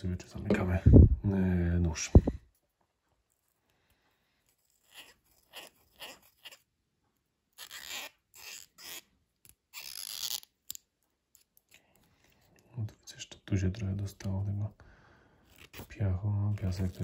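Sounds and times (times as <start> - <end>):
cotton swab scratchy rubs: 4.4 - 6.8, 7.5 - 10.5, 15.5 - 17.0.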